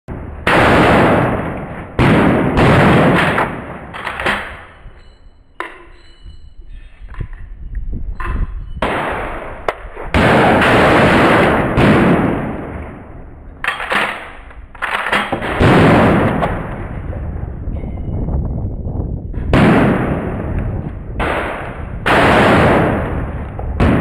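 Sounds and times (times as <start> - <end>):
shotgun blasts: 0.1 - 4.6, 8.8 - 13.2, 15.3 - 17.1, 19.4 - 24.0.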